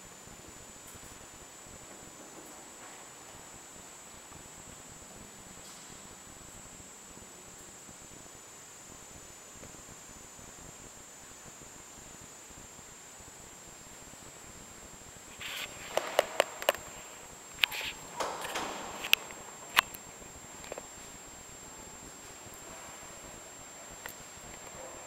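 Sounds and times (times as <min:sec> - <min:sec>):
faint high-pitched whine: 0:00.0 - 0:25.0
sharp clicks and knocks: 0:15.9 - 0:16.9, 0:17.6 - 0:20.9.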